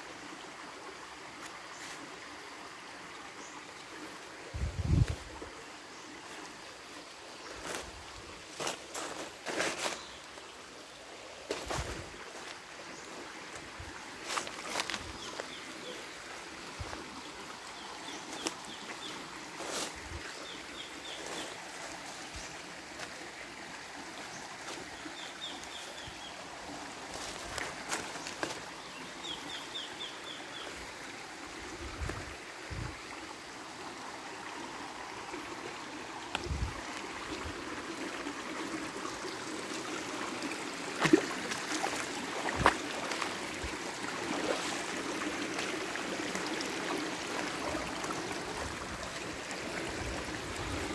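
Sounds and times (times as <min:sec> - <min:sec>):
river running over rocks: 0:00.0 - 0:50.9
footsteps on stones and leaves: 0:07.6 - 0:10.4, 0:11.5 - 0:12.6, 0:13.5 - 0:15.5, 0:27.0 - 0:28.7, 0:41.0 - 0:43.7.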